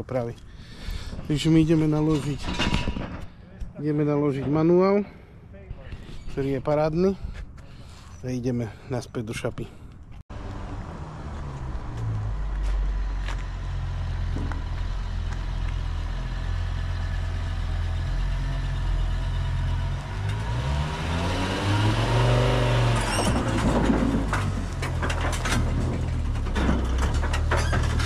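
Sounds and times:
sharp clanks and knocks: 1.1s - 5.0s, 22.8s - 28.0s
car engine idling and revving: 10.3s - 28.0s.

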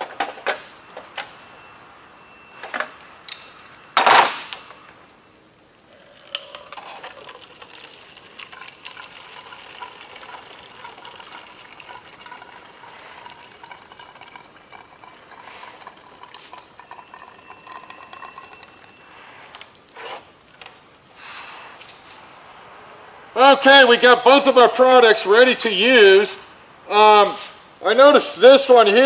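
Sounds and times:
liquid trickling into bottle: 5.9s - 19.8s.

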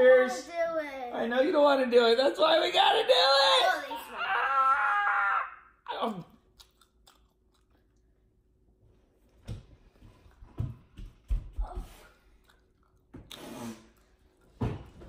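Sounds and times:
people chewing: 5.9s - 8.5s, 11.8s - 15.0s
wet mouth clicks: 6.5s - 8.0s, 12.4s - 14.1s.

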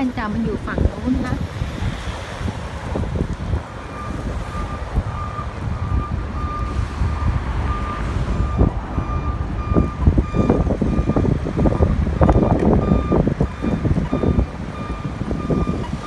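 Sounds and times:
street traffic rumble: 0.0s - 16.0s
crossing signal beeping: 3.8s - 16.0s.

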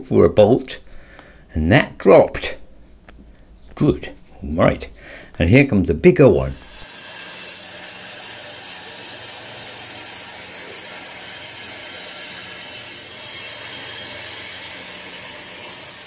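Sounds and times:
plasma arc hissing: 6.5s - 16.0s.

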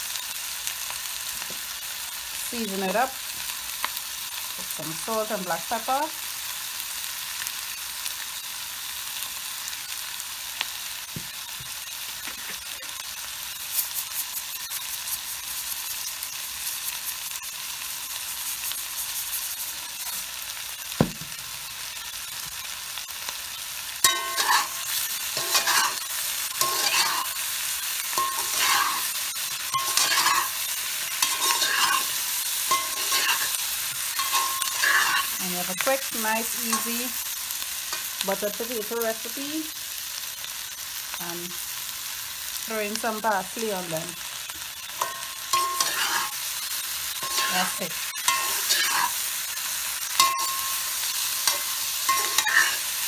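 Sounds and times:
potatoes sizzling in butter: 0.0s - 53.0s
utensil scraping a pan: 24.0s - 27.4s, 28.0s - 37.1s, 45.0s - 46.4s, 47.2s - 49.2s, 50.1s - 53.0s.

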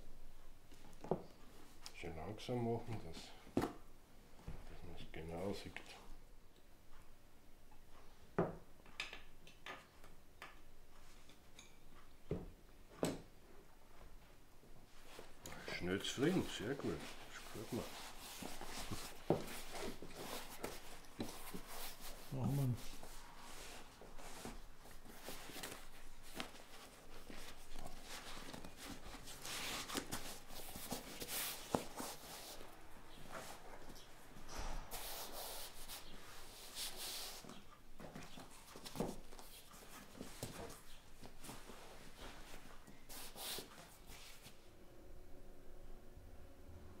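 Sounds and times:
rustling and rubbing of upholstery: 14.9s - 44.6s.

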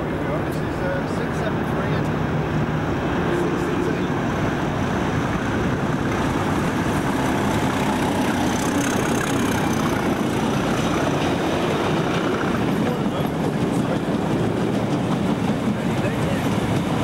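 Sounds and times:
diesel locomotive engine passing: 0.0s - 17.0s
freight wagons rolling on track: 0.0s - 17.0s.

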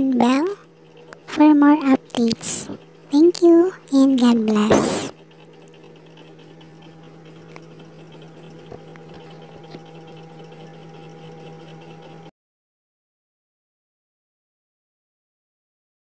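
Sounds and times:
steady low hum: 0.0s - 12.3s.

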